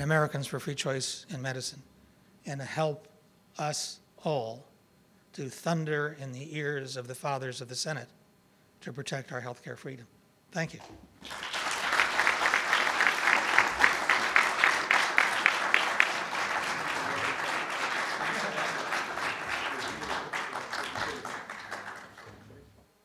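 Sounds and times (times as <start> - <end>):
audience applauding: 11.2 - 22.7.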